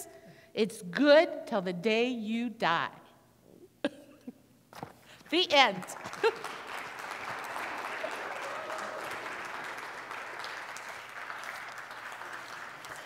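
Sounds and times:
congregation applauding: 5.6 - 13.0.

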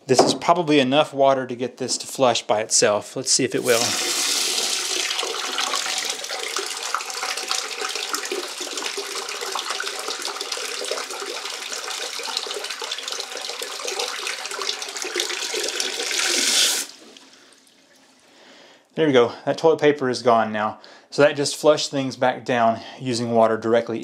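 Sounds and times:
toilet bowl flushing: 3.5 - 18.0
water gushing into toilet bowl: 3.5 - 18.2.

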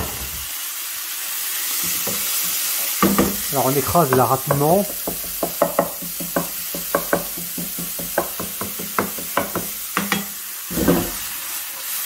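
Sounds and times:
food sizzling in a pan: 0.0 - 12.0
wooden spatula scraping frying pan: 9.1 - 11.4.

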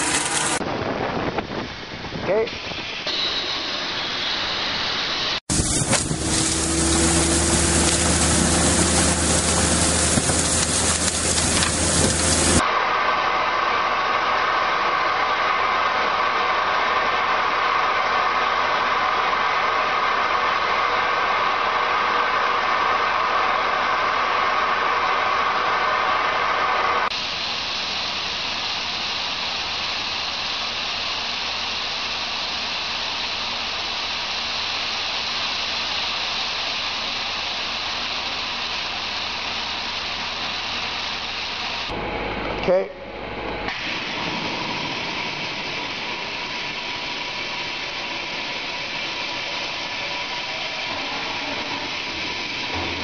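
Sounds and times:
air and stones rushing through hose: 0.0 - 1.6, 4.2 - 41.9, 43.7 - 53.0
machine hum: 0.0 - 53.0
gravel pouring onto a pile: 5.5 - 12.6.

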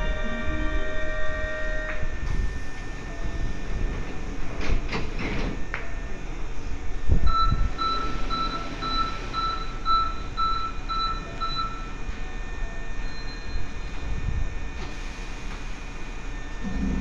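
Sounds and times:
short warning beeps: 7.3 - 11.9
sliding door shutting: 7.7 - 9.6.

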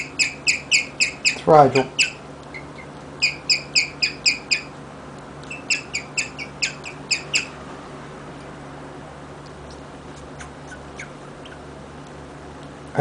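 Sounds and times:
guinea pig chirping: 0.0 - 4.8, 5.4 - 7.6, 9.7 - 11.8.

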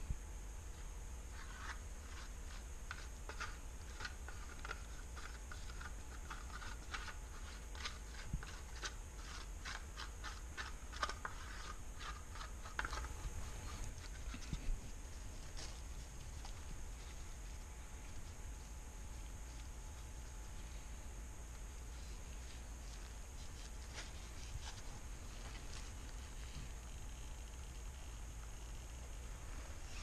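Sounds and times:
steady low hum: 0.0 - 30.0
wooden stick scratching and clicking: 1.3 - 14.8
gloved hands handling: 21.6 - 26.6.

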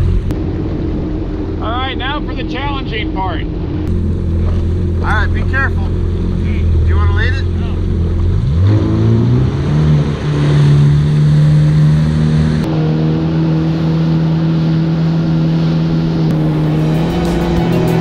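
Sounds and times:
jet ski engine revving: 3.8 - 18.0.

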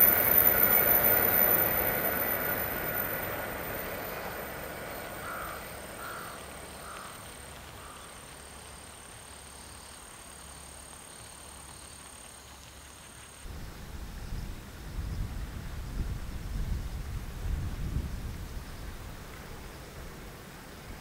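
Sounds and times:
crow cawing: 5.2 - 8.2
wind buffeting microphone: 13.5 - 21.0.

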